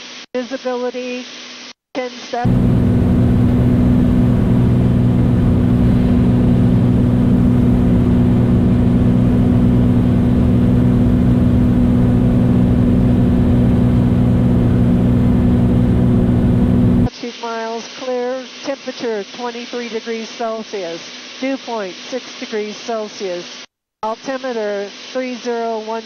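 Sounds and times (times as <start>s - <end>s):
propeller plane engine drone: 2.5s - 17.1s.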